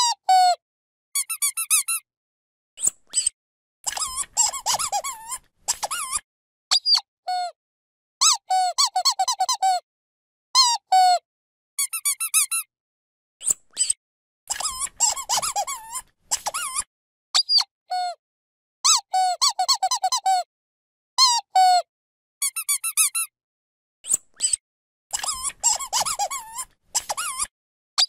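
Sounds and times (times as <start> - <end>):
squeaky toy squeaking: 0.0 - 0.6, 1.2 - 2.0, 2.8 - 7.5, 8.2 - 9.8, 10.6 - 11.2, 11.8 - 12.7, 13.4 - 18.2, 18.8 - 20.5, 21.2 - 21.8, 22.4 - 23.3, 24.1 - 27.5.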